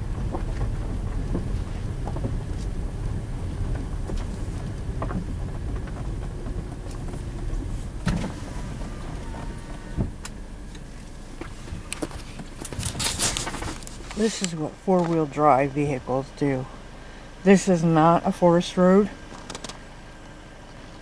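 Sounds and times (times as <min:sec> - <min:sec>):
knocks and rattles: 0:00.0 - 0:10.2
car engine and tyres rumbling: 0:00.0 - 0:21.0.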